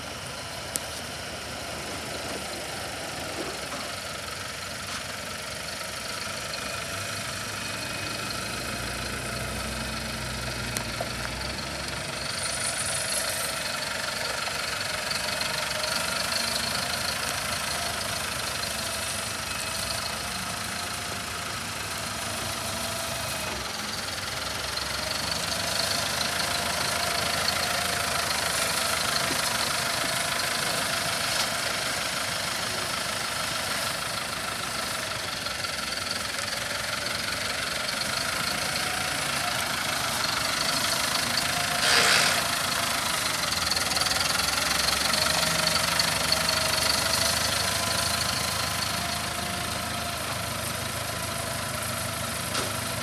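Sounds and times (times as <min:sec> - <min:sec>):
tractor diesel engine running: 0:00.0 - 0:53.0
brief loud hiss: 0:41.8 - 0:42.4.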